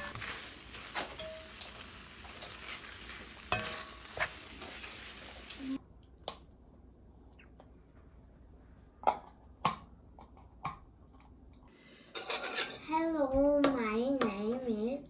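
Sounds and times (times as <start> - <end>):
dishes and cutlery clattering: 0.9 - 1.7, 12.1 - 12.9.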